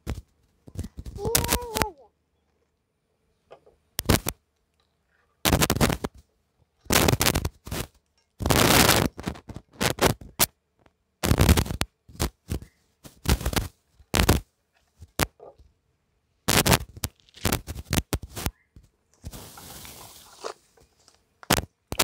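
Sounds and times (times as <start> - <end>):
plastic rope scraping and rustling: 5.5 - 6.2, 6.9 - 10.5, 11.2 - 15.6, 16.5 - 18.5, 19.2 - 22.0.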